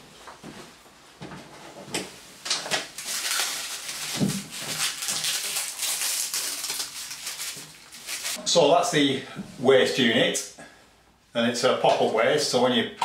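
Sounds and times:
plastic film peeling: 2.8s - 8.4s
plastic film ripping: 2.8s - 8.4s.

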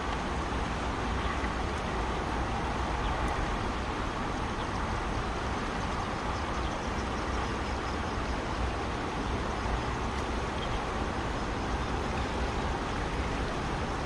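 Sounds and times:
fast-flowing river rushing: 0.0s - 14.0s.

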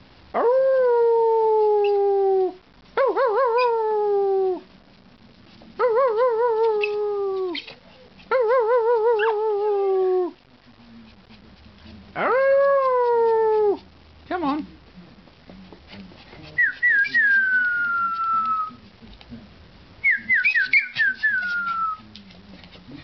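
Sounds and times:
small dog howling: 0.3s - 4.6s, 5.8s - 10.4s, 12.2s - 13.9s.

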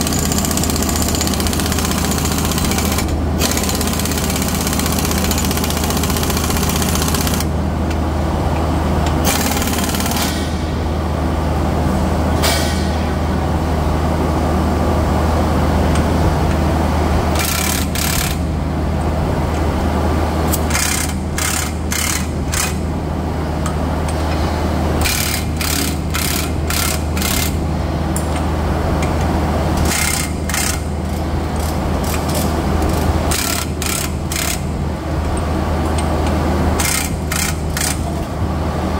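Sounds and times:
pneumatic impact wrench bursts: 0.0s - 7.5s, 9.2s - 10.6s
low machinery hum: 0.0s - 38.9s.

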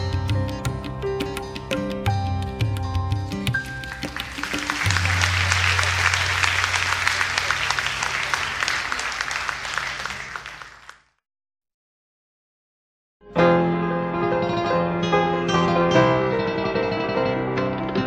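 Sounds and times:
audience applauding: 3.6s - 11.1s.

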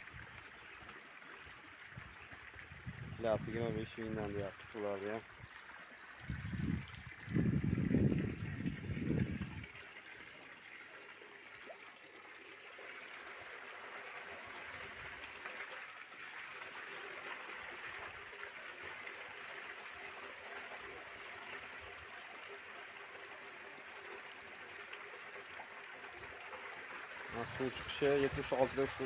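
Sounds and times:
water splashing into tank: 0.0s - 23.0s.

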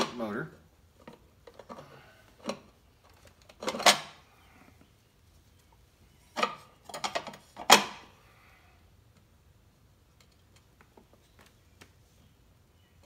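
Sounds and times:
plastic and metal parts clattering: 1.0s - 4.2s, 6.3s - 8.0s.

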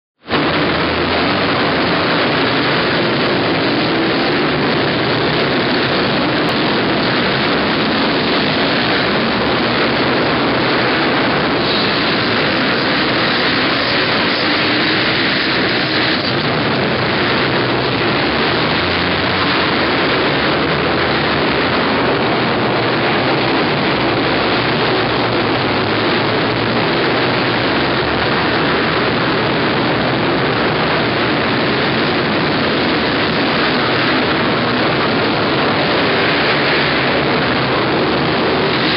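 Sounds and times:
small two-stroke engines buzzing: 0.3s - 38.9s.

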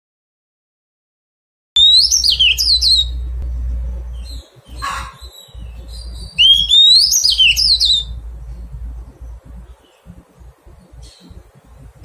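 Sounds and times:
bird singing whistled note: 1.8s - 3.2s, 4.1s - 8.2s
low steady hum: 1.8s - 12.0s.

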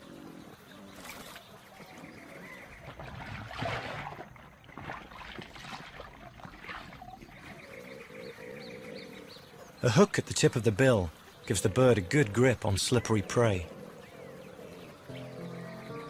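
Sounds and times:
water splashing and sloshing: 0.9s - 8.0s.

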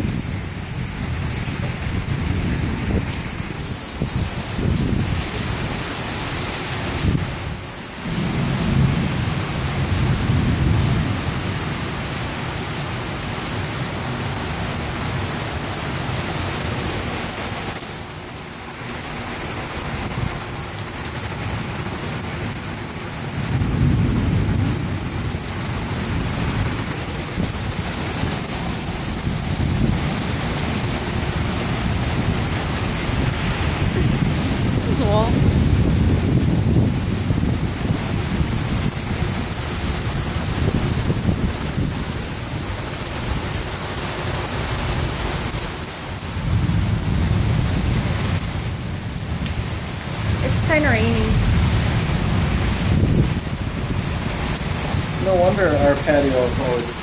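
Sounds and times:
heavy rain pouring: 0.0s - 57.0s
thunder rumbling low: 8.0s - 11.6s, 23.2s - 42.0s, 51.3s - 55.2s.

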